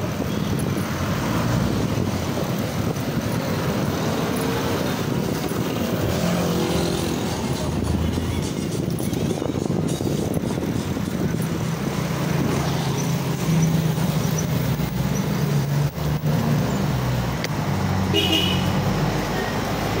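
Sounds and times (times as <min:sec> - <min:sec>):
vehicle engines rumbling: 0:00.0 - 0:20.0
vehicle horn toot: 0:18.1 - 0:18.8.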